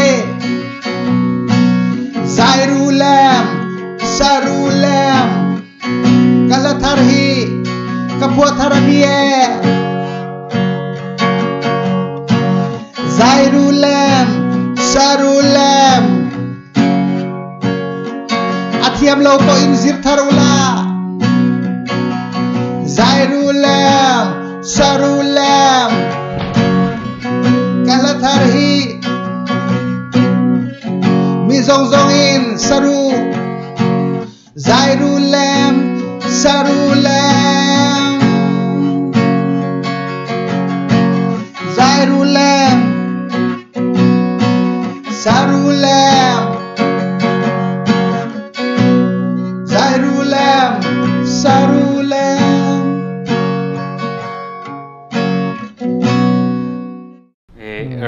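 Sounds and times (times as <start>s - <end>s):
man singing: 0.0s - 0.8s, 1.9s - 9.8s, 12.6s - 16.4s, 18.7s - 21.0s, 22.8s - 29.2s, 30.8s - 33.4s, 34.3s - 39.4s, 41.4s - 43.1s, 44.9s - 46.8s, 49.6s - 53.1s, 57.5s - 58.0s
strummed acoustic guitar: 0.0s - 58.0s.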